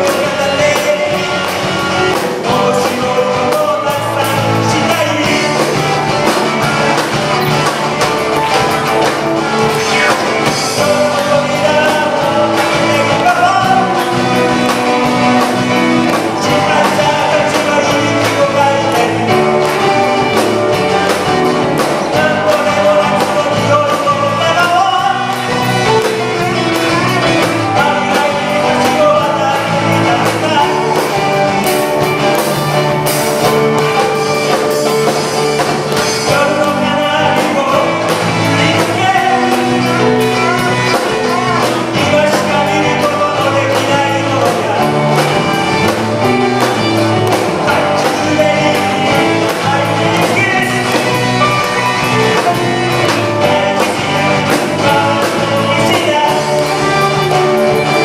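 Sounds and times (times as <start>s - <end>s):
bass guitar: 0.0s - 58.0s
drum kit: 0.0s - 58.0s
electric guitar: 0.0s - 58.0s
keyboard: 0.0s - 58.0s
violin melody: 44.2s - 58.0s.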